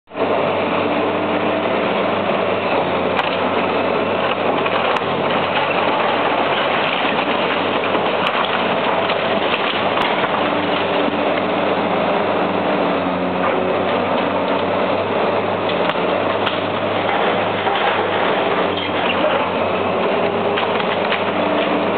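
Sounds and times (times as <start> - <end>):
excavator diesel engine humming: 0.1 - 21.9
brickwork crackling as it breaks: 4.2 - 11.1, 15.7 - 19.6, 20.4 - 21.8.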